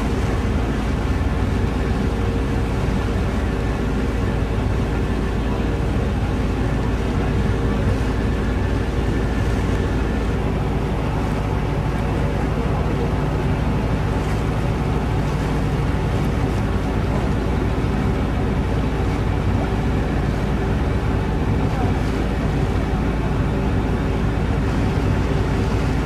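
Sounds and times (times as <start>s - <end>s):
ferry engine humming: 0.0s - 26.0s
water rushing along hull: 0.0s - 26.0s.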